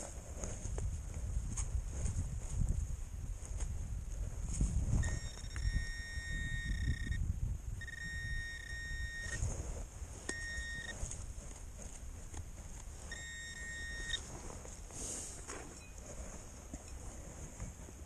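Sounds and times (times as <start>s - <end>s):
soil and grass rustling: 0.0s - 18.0s
metal detector high tone: 5.0s - 9.4s, 10.2s - 11.1s, 13.0s - 14.3s.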